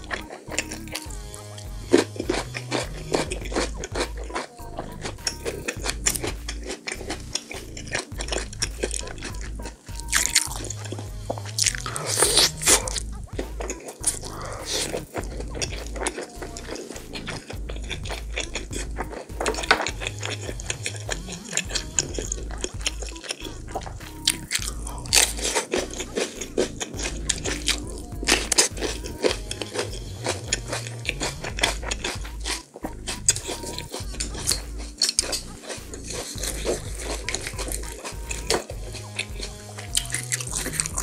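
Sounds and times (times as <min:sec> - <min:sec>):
chewing crunchy pepper: 0:00.0 - 0:41.0.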